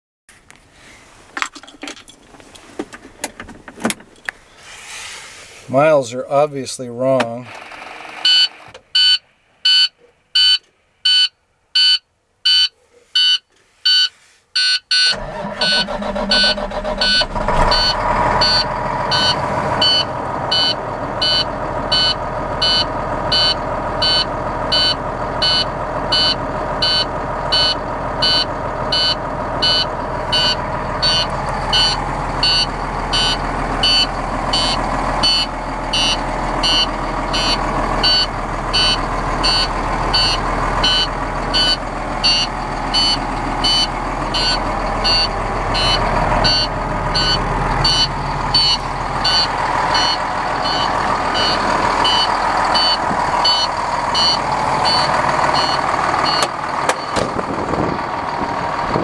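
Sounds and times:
diesel engine running: 7.4 - 8.7, 15.1 - 59.0
truck warning beeper: 8.2 - 57.2.

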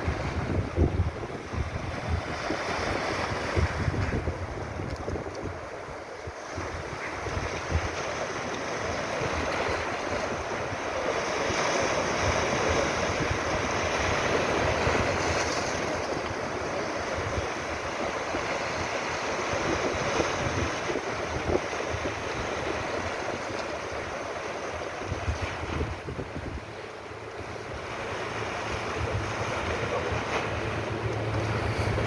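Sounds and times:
sea waves washing over rocks: 0.0 - 32.0.

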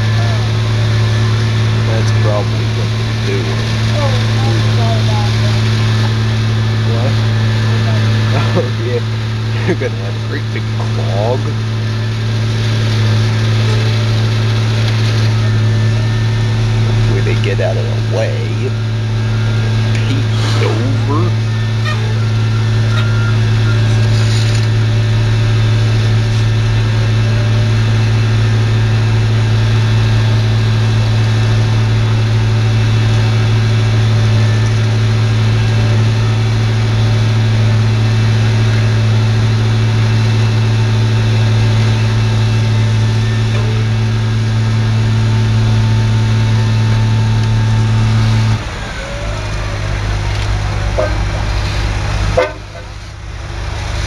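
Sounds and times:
heavy diesel engines humming: 0.0 - 54.0.

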